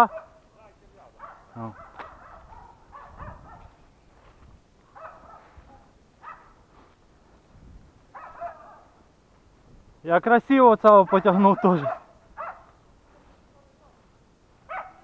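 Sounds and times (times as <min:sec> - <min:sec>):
dog barking faintly: 0:00.0 - 0:00.4, 0:01.1 - 0:03.8, 0:04.9 - 0:06.7, 0:08.1 - 0:09.0, 0:11.0 - 0:13.7, 0:14.7 - 0:15.0.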